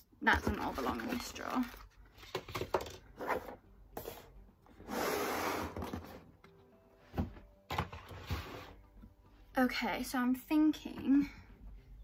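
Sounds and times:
tray scraping across drawer: 0:04.8 - 0:06.2, 0:08.0 - 0:08.8.

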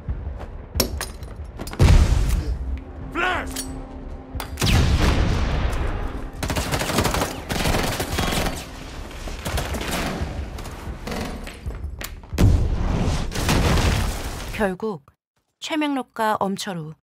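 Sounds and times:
rapid gunfire: 0:06.4 - 0:08.8.

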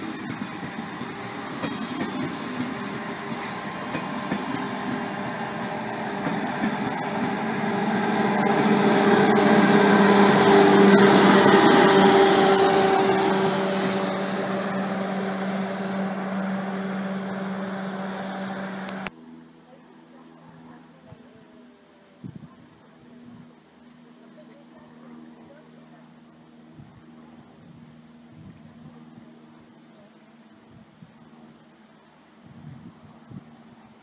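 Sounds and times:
high-speed train rushing past: 0:00.0 - 0:19.1.

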